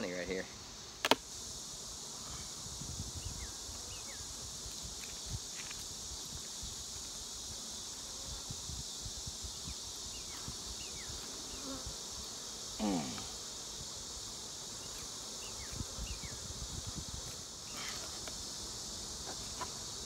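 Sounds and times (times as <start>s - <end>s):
bees buzzing: 9.4s - 20.0s.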